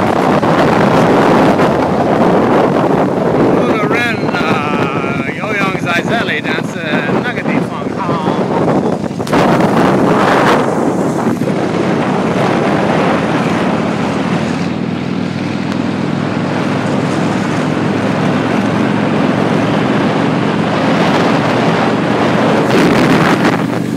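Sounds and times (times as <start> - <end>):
motorcycle engine running: 0.0 - 23.9
wind on microphone: 0.0 - 23.9.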